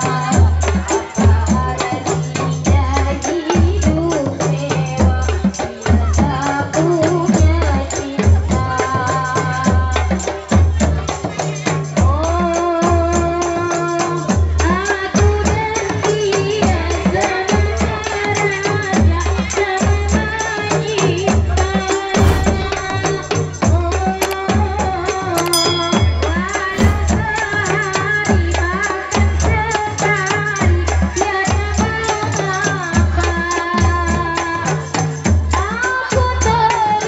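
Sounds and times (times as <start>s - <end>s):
frame drums beating: 25.4s - 27.7s.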